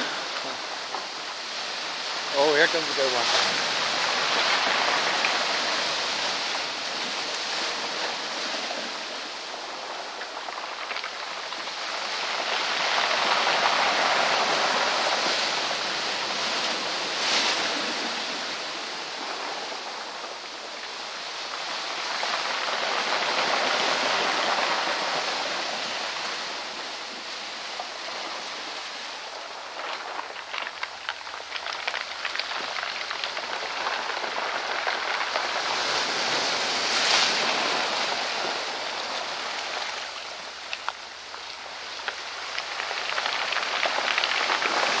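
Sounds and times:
surf breaking among rocks: 0.0 - 45.0
wave crashing: 0.0 - 45.0
beach cobbles rattling in water: 29.2 - 45.0.

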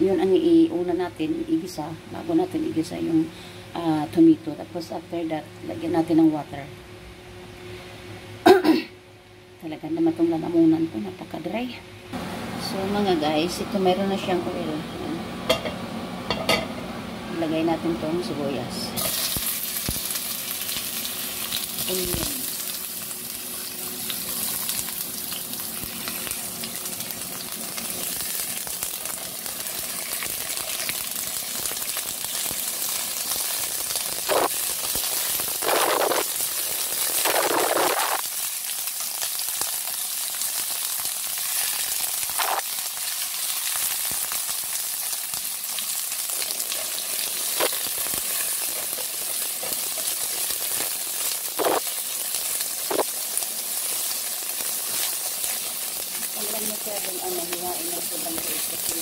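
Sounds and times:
onion sizzling in hot oil: 18.9 - 59.0
spatula scraping wok: 46.7 - 50.8.

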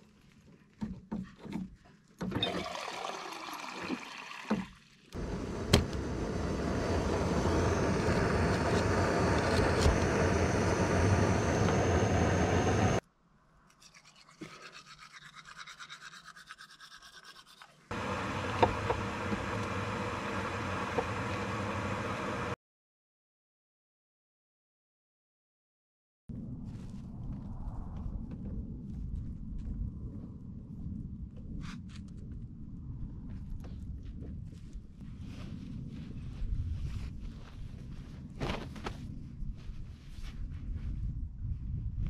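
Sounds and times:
stove burner hissing: 5.2 - 13.0, 17.9 - 22.6.

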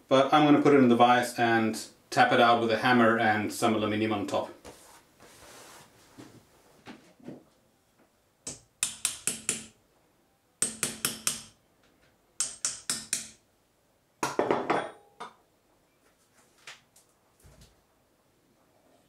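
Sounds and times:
hammer striking metal: 8.5 - 9.8, 10.6 - 11.6, 12.4 - 13.4.

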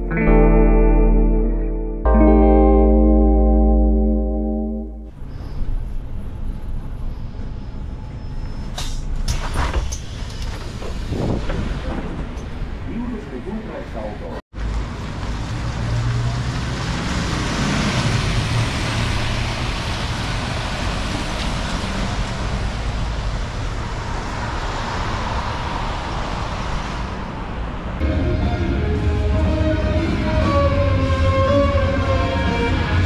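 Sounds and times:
violin playing: 0.0 - 5.1, 28.0 - 33.0
bus engine rumbling: 4.2 - 33.0
road traffic hissing: 5.1 - 11.2.

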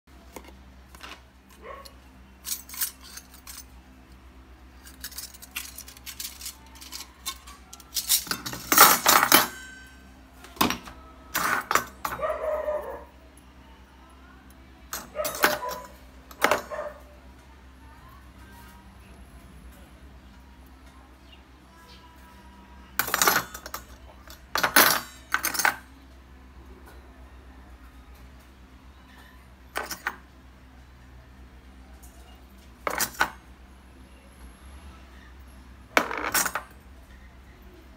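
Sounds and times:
metal rings clinking: 2.4 - 3.8, 4.8 - 12.3, 14.9 - 16.8, 23.0 - 25.9, 29.7 - 30.2, 32.8 - 33.4, 36.0 - 36.8.

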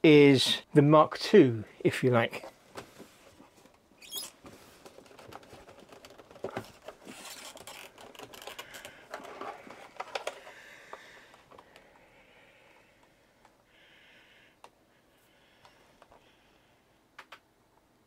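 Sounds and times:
bubble wrap rustling: 4.2 - 10.4
plastic laptop case clicks and scrapes: 4.8 - 10.4.

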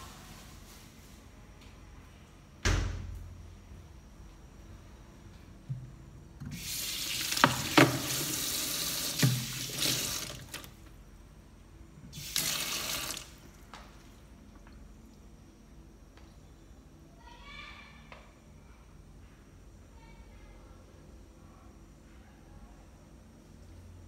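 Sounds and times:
tap running into sink: 6.4 - 10.7.

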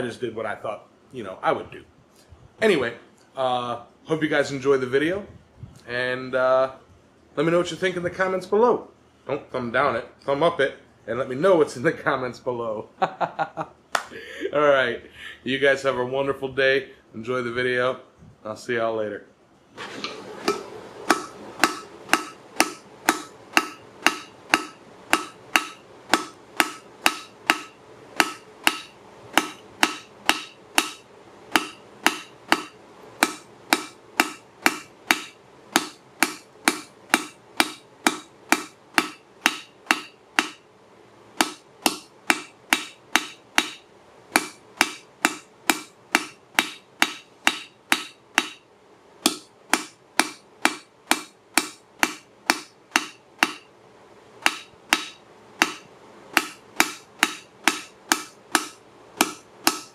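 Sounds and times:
hammer striking hot metal on anvil: 20.5 - 40.6, 41.4 - 43.8, 44.4 - 48.6, 49.2 - 53.7, 54.4 - 59.9.

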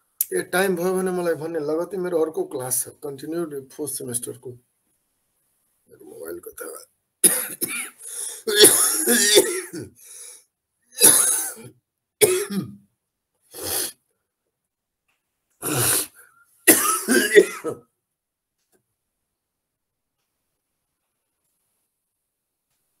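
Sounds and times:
man clearing his throat: 7.2 - 10.0, 11.0 - 12.8, 16.7 - 17.8
man coughing: 7.2 - 10.0, 11.0 - 12.8, 16.7 - 17.8.

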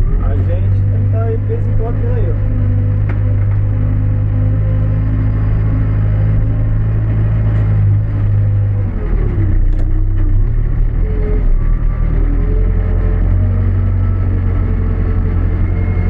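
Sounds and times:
diesel engine running: 0.0 - 16.0.

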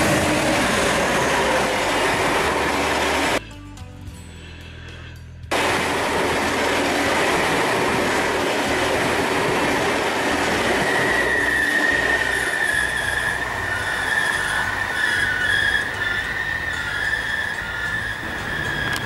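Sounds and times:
train wheels rushing on rails: 0.0 - 3.4, 5.5 - 19.0
high wheel squeal: 10.2 - 19.0.

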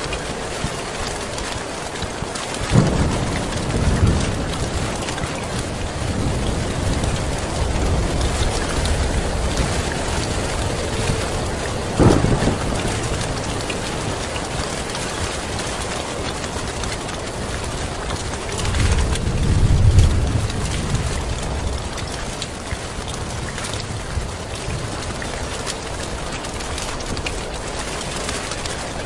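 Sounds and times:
heavy rain on a tin roof: 0.0 - 29.0
thunderclaps: 2.6 - 11.3, 11.9 - 15.1, 18.5 - 29.0
low rumble of thunder: 2.6 - 29.0.

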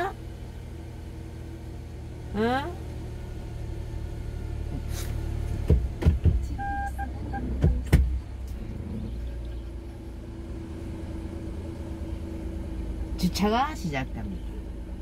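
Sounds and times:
car rumble inside cabin: 0.0 - 15.0
knocks and clunks: 5.5 - 9.8
electronic beeps: 6.6 - 7.5.

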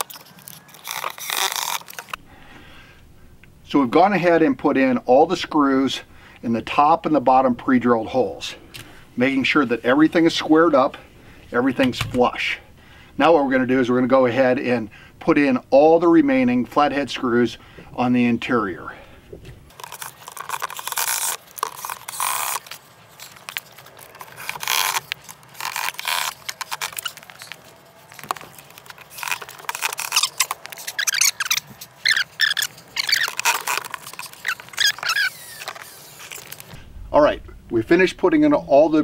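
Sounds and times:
screws squealing: 19.8 - 23.5, 24.1 - 36.7.

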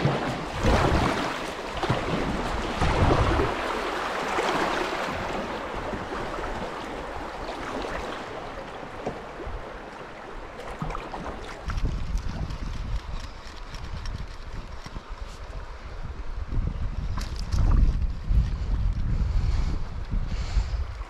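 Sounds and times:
rushing river water: 0.0 - 12.3.

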